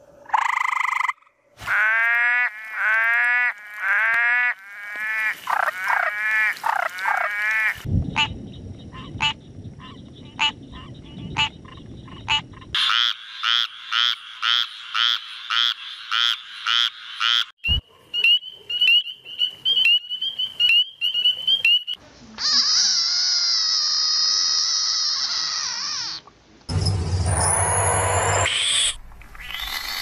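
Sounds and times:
frogs calling: 0.2 - 26.3
frog screaming: 0.3 - 7.9, 22.4 - 26.2, 27.3 - 30.0.

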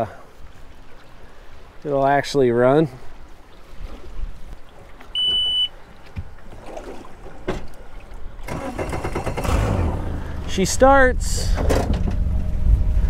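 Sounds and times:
warning buzzer beep: 5.2 - 5.7
boat motor starting: 8.4 - 13.0.

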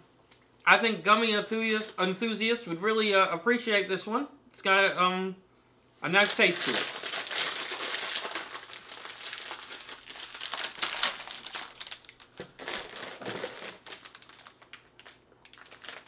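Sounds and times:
plastic packaging crinkling: 6.2 - 16.0.

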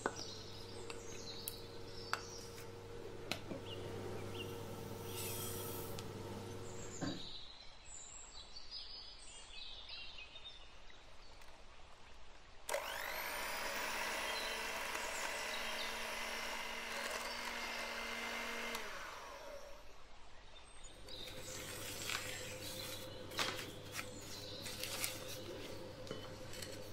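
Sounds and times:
electric hand mixer running: 0.0 - 7.2, 12.7 - 20.0, 21.0 - 26.9.

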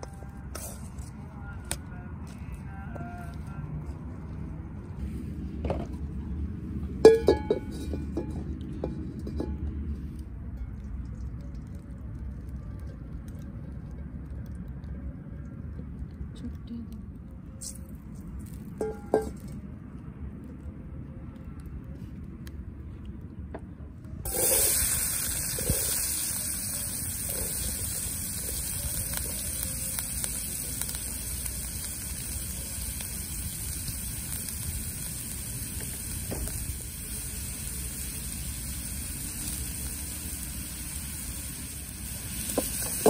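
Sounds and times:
food sizzling in a pot: 24.3 - 43.0.

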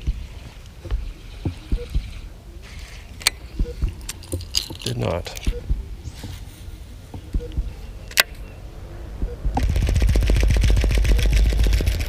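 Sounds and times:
handling rumble: 3.0 - 12.0.

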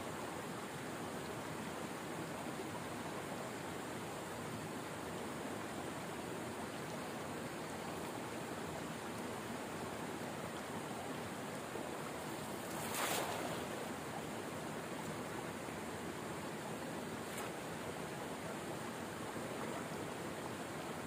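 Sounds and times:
stream water rushing: 0.1 - 21.0
cast net splashing on water: 12.5 - 14.0.

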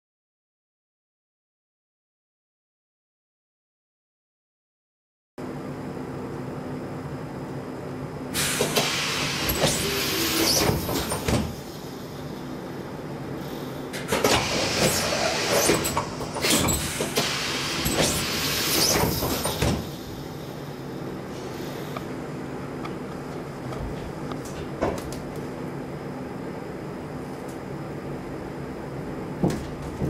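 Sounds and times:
railcar hum: 5.4 - 30.0
train doors sliding shut: 8.3 - 12.2, 13.5 - 20.6.

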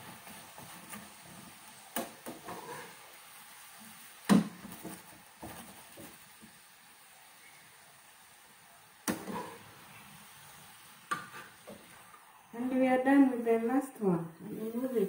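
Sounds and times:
metal spoon scraping frying pan: 2.3 - 3.1, 9.1 - 9.7.

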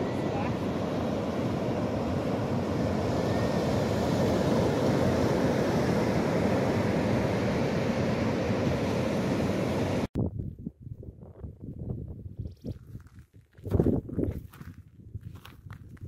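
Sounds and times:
surf breaking on beach: 0.0 - 10.1
wind on microphone: 0.0 - 16.0.

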